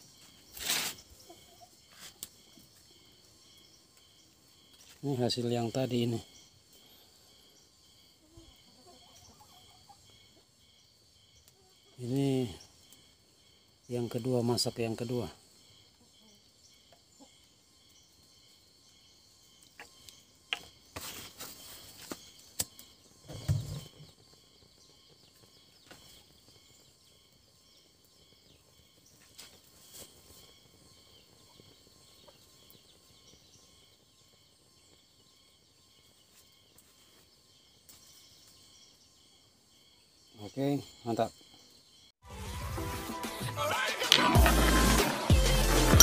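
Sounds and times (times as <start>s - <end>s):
rustling: 0.0s - 1.2s
insects chirping: 0.0s - 42.2s.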